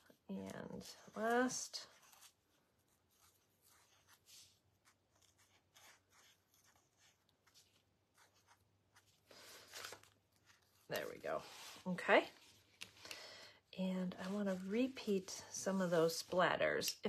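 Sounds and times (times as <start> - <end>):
marker scratching on paper: 3.1 - 9.2.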